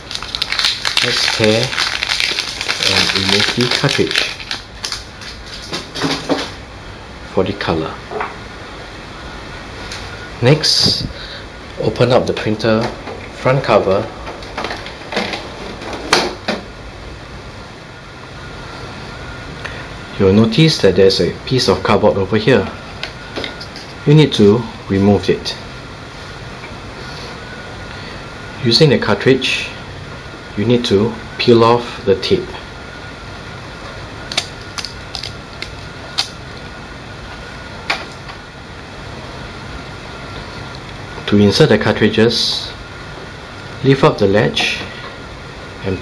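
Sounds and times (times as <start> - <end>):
plastic film crackling: 0.0 - 6.5, 34.3 - 36.4
printer low hum: 0.0 - 46.0.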